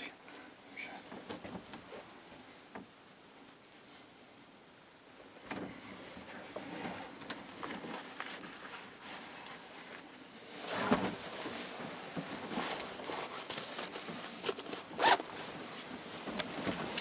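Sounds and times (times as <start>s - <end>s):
clothing rustling: 5.6s - 17.0s.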